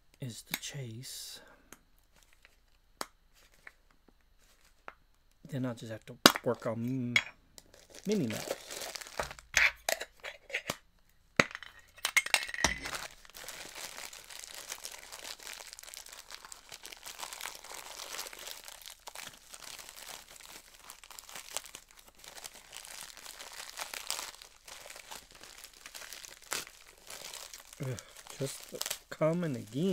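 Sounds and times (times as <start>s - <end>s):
plastic wrapping crinkling: 7.6s - 9.5s, 12.2s - 29.9s
metal clinks and knocks: 11.4s - 13.1s.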